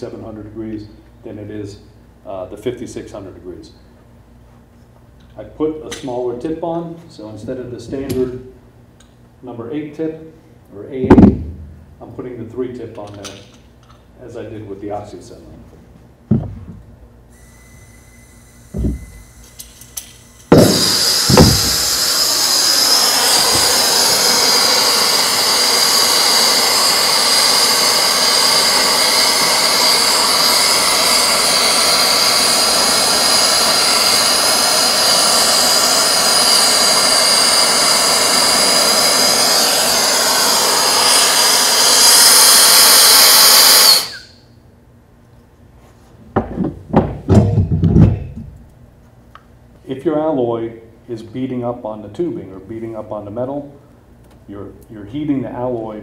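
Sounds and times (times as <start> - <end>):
torch knocks: 11.0 - 11.6, 16.3 - 16.8, 18.7 - 19.2, 20.5 - 22.7, 23.3 - 24.1
torch flame hissing: 17.4 - 44.4.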